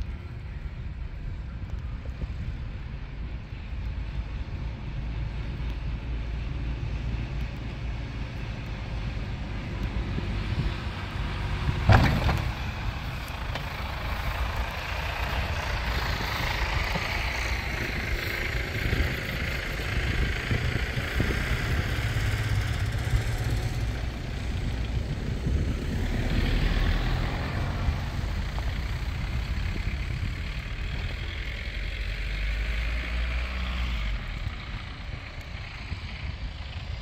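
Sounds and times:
truck engine passing: 0:04.0 - 0:37.0.

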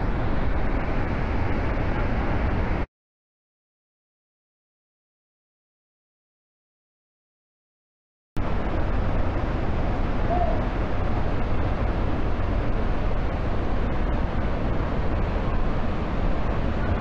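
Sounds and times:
waterfall roaring: 0:00.0 - 0:02.8, 0:08.4 - 0:17.0
wind buffeting microphone: 0:08.4 - 0:17.0.

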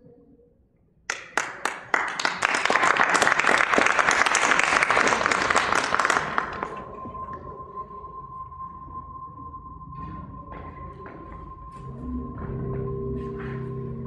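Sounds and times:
audience applauding: 0:01.1 - 0:07.2.

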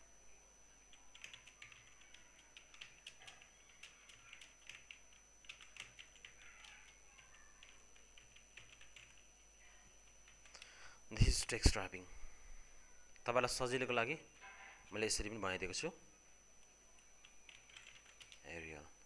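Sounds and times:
typing on computer keyboard: 0:00.9 - 0:09.3, 0:10.0 - 0:10.7, 0:17.2 - 0:18.5.

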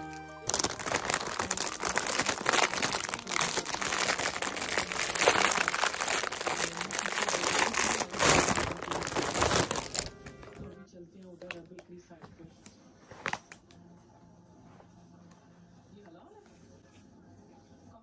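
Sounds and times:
plastic wrap crinkling: 0:00.0 - 0:10.7, 0:13.1 - 0:13.6.

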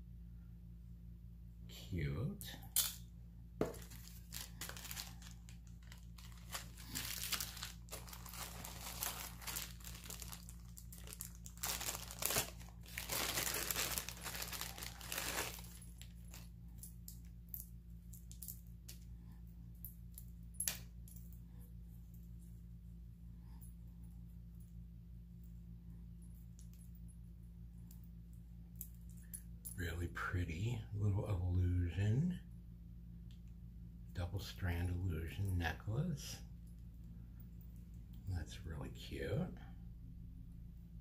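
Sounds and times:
plastic wrapping crinkling: 0:03.6 - 0:16.5.

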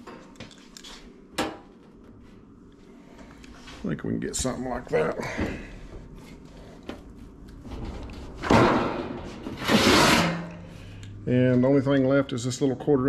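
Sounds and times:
sheet metal sliding and scraping: 0:07.6 - 0:11.0.

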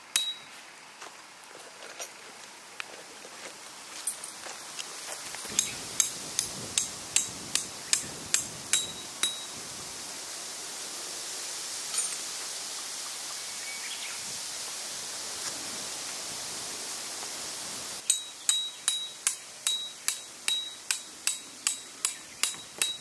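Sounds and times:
hammer striking metal tent peg: 0:00.1 - 0:00.5, 0:05.5 - 0:09.5, 0:18.0 - 0:23.0.

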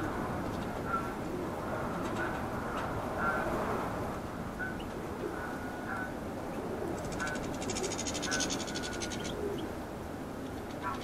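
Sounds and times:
finches chirping: 0:07.0 - 0:09.7.

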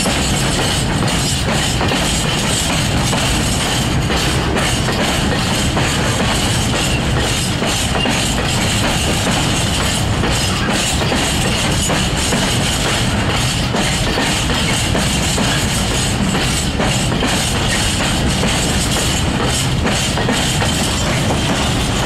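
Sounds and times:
steel wheels rumbling on rails: 0:00.0 - 0:22.0
wagon clanks: 0:00.0 - 0:22.0.

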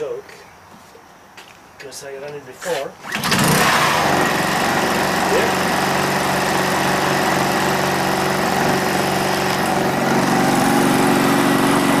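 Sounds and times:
generator engine running: 0:03.0 - 0:12.0.

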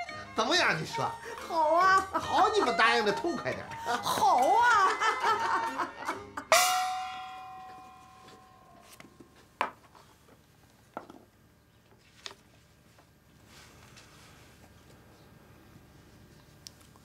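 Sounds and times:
single ringing musical note: 0:06.5 - 0:09.2.

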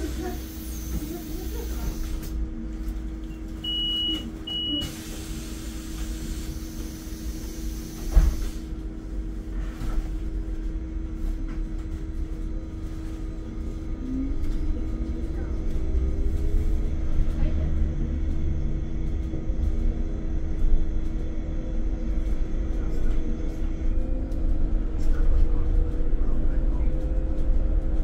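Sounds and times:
low rumble: 0:08.4 - 0:28.0.

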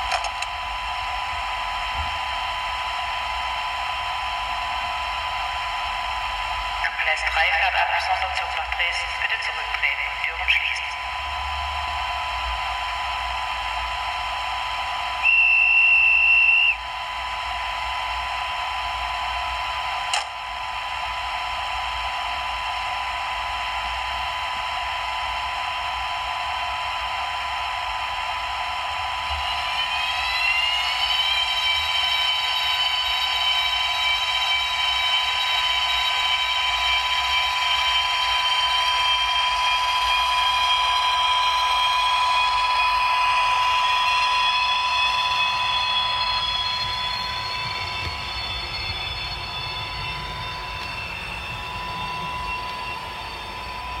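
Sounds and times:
model locomotive hiss and hum: 0:08.7 - 0:54.0
electric motor whine: 0:11.0 - 0:54.0.

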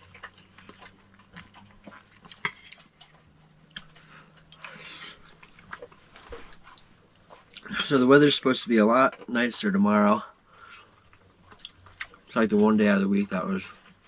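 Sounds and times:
chewing: 0:00.0 - 0:08.0, 0:10.5 - 0:12.4
fork scraping on a plate: 0:02.4 - 0:02.9.

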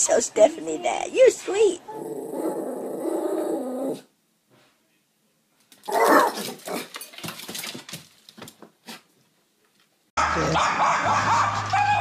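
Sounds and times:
dog barking: 0:10.2 - 0:12.0.

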